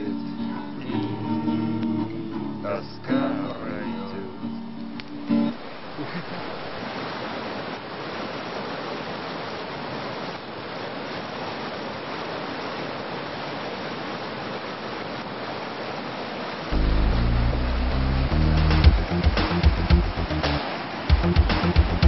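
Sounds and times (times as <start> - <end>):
music: 0.0 - 5.6, 16.7 - 22.0
river rapids roaring: 5.2 - 22.0.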